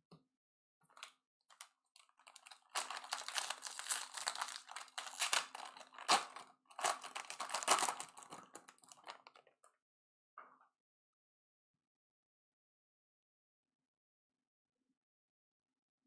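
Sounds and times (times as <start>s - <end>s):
foil wrapper tearing and crinkling: 1.5s - 9.3s.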